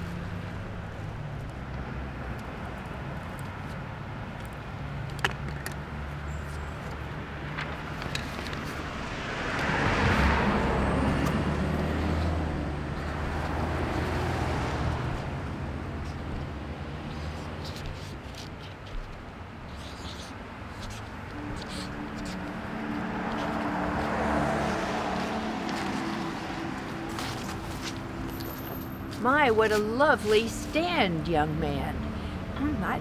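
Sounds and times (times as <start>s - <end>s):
traffic engine hum: 0.0s - 33.0s
car passing by: 6.2s - 18.5s, 20.6s - 32.6s.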